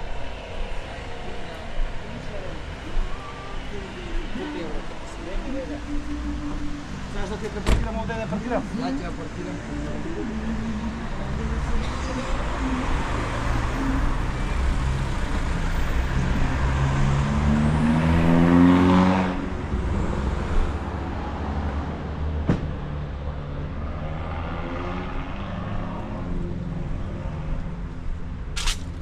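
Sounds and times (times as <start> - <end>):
vehicle pulling away: 4.2 - 22.4
vehicle accelerating past: 9.1 - 27.9.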